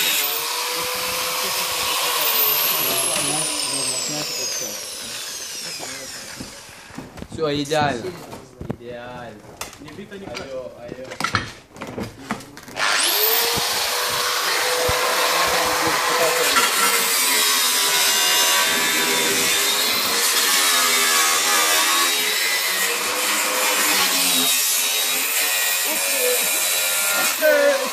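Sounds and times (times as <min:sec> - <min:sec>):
angle grinder cutting steel: 0:00.0 - 0:07.0, 0:12.8 - 0:27.9.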